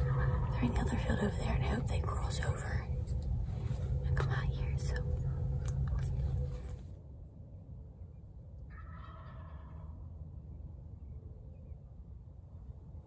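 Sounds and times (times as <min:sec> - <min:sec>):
turkey gobbling: 0:00.0 - 0:01.0, 0:08.7 - 0:10.1
low rumble with clicks: 0:00.0 - 0:08.7.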